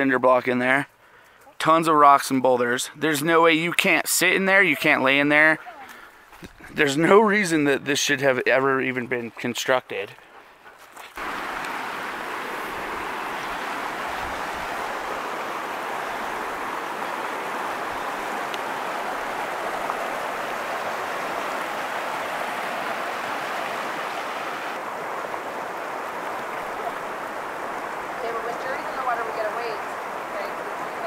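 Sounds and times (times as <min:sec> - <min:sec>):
river rushing over stones: 0:11.2 - 0:31.0.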